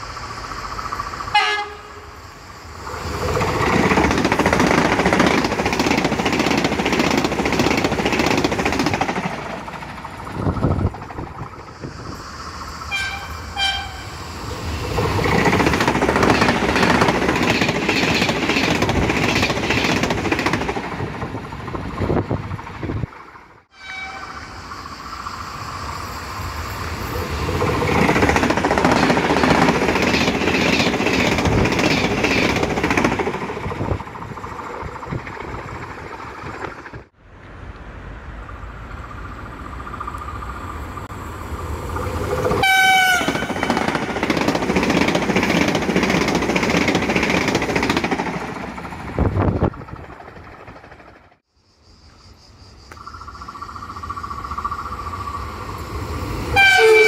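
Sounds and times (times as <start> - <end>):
high-speed trains passing: 0.0 - 57.0
train horn: 1.3 - 2.2, 12.9 - 14.2, 23.7 - 24.6, 42.6 - 43.8, 56.6 - 57.0.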